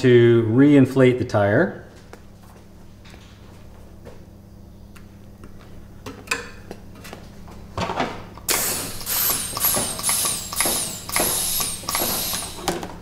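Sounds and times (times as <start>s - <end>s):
air hissing into tyre: 8.5s - 12.7s.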